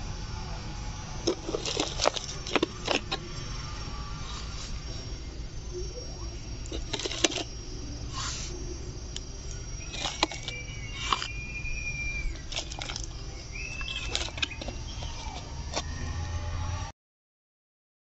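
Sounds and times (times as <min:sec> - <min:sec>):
plastic bottle and soil crackling: 0:01.2 - 0:03.4, 0:06.6 - 0:07.5, 0:09.2 - 0:11.4, 0:12.1 - 0:16.0
bird whistling: 0:09.5 - 0:16.1.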